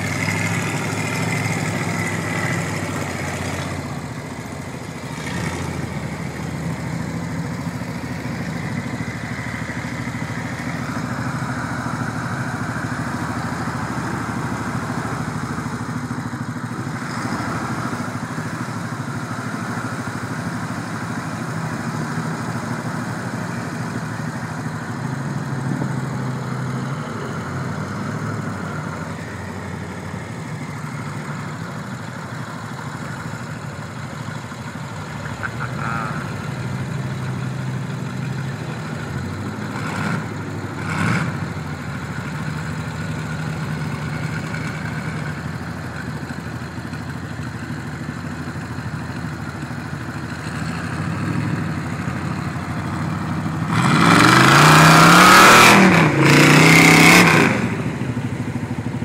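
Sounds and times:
truck engines running: 0:00.0 - 0:59.0
engine revving hard: 0:05.1 - 0:05.9, 0:39.7 - 0:41.4, 0:53.6 - 0:58.0.

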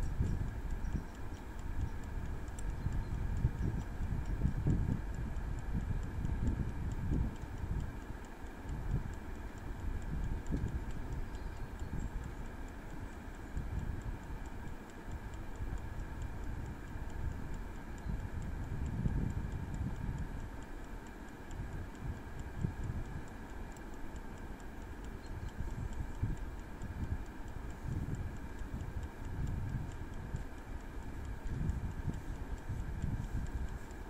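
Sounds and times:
wind on microphone: 0:00.0 - 0:08.0, 0:15.6 - 0:20.4, 0:25.3 - 0:30.4, 0:31.0 - 0:34.0
air fryer fan whirring: 0:00.0 - 0:34.0
mechanical timer ticking: 0:00.0 - 0:34.0.

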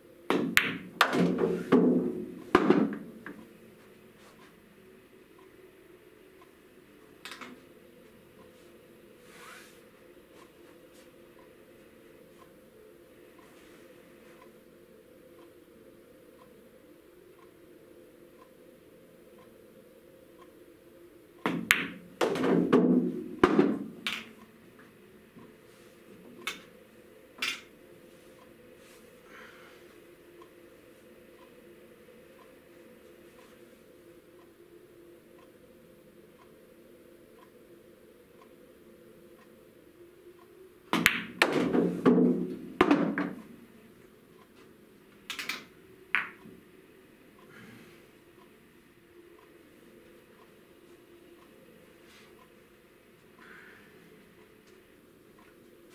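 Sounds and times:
pool balls clicking: 0:00.3 - 0:03.5, 0:21.4 - 0:24.4, 0:40.9 - 0:43.6, 0:45.2 - 0:46.5
ball rolling inside table: 0:00.5 - 0:03.4, 0:41.0 - 0:43.4
light clicks of balls handled: 0:06.4 - 0:07.7, 0:23.4 - 0:26.8
cue tip striking ball: 0:40.9 - 0:43.4.

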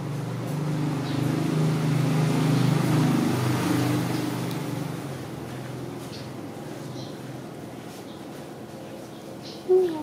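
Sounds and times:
passing vehicle engine hum: 0:00.0 - 0:07.8.

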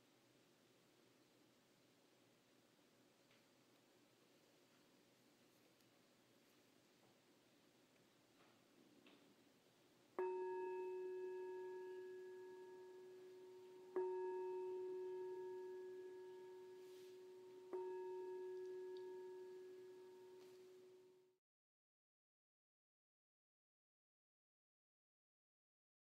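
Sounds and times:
meditation bell ringing: 0:10.2 - 0:21.4.

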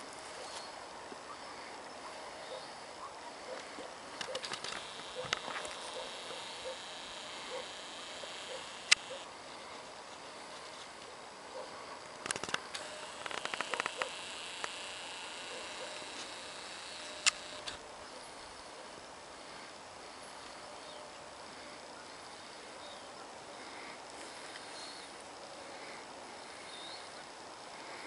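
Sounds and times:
faint outdoor background hiss: 0:00.0 - 0:28.0
quick ticks: 0:08.5 - 0:09.2, 0:12.0 - 0:14.8
camera handling clicks: 0:12.2 - 0:14.8, 0:17.0 - 0:17.8.

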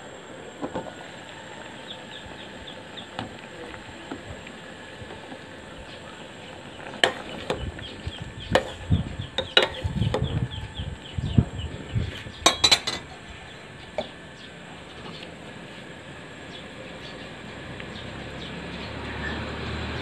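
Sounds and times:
ladle scraping metal pot: 0:12.4 - 0:13.1.

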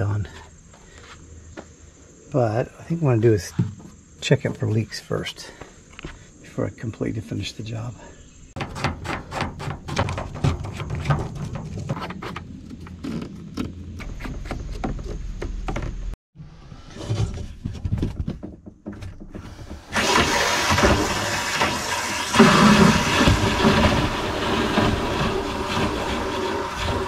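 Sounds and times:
water rushing: 0:19.9 - 0:27.0.

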